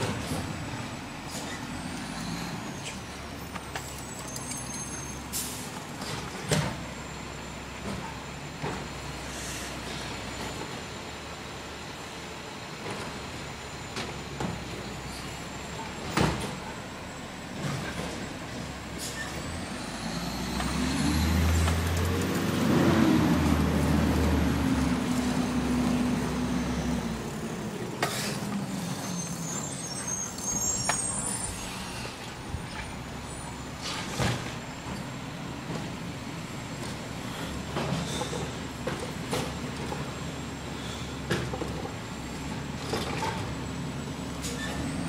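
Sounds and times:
garbage truck diesel engine revving: 0:17.5 - 0:31.8.

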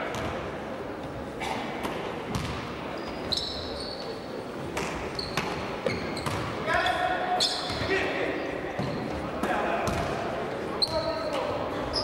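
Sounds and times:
basketball bouncing on wooden floor: 0:02.3 - 0:02.6.

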